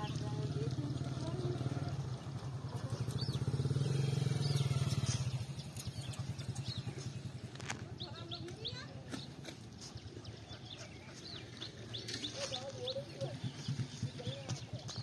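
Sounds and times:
small engine running: 0.0s - 8.7s
bird chirps: 2.0s - 15.0s.

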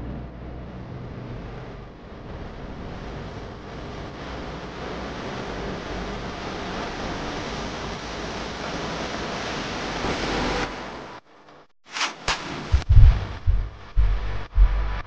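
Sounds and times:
steady rushing noise: 0.0s - 11.2s, 11.9s - 15.0s.

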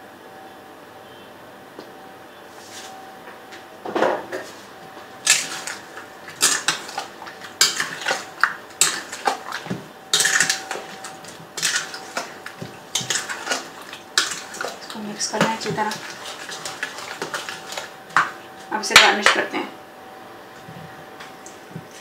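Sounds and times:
spatula scraping metal bowl: 5.2s - 18.4s.

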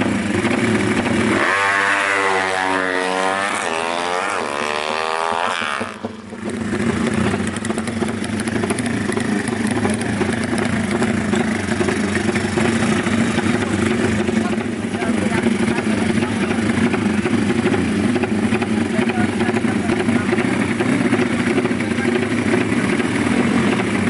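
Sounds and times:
engines idling roughly: 0.0s - 2.4s, 3.5s - 24.0s
motorcycle engine revving: 0.0s - 24.0s.

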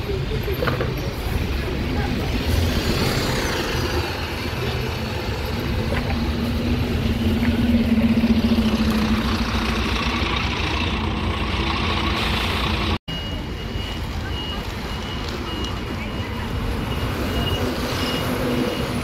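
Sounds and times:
bus engine idling: 4.1s - 17.5s.

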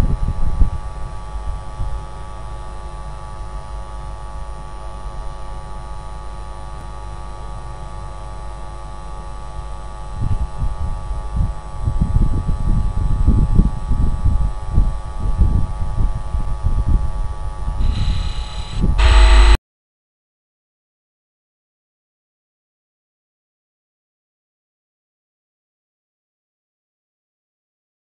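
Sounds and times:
electrical hum: 17.6s - 19.6s.

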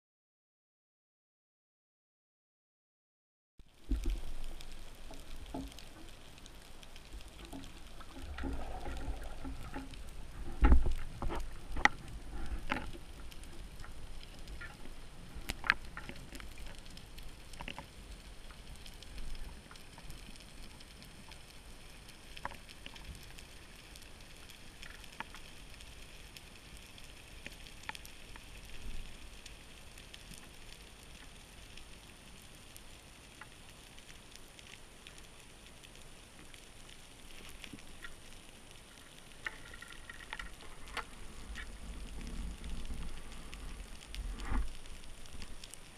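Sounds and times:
clicks and crackles: 3.6s - 45.9s
underwater hiss: 4.0s - 17.6s, 40.6s - 45.9s.

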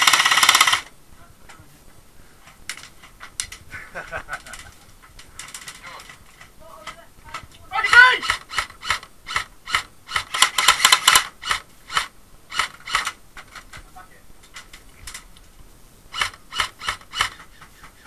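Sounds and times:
airsoft gun shots: 7.8s - 13.2s.

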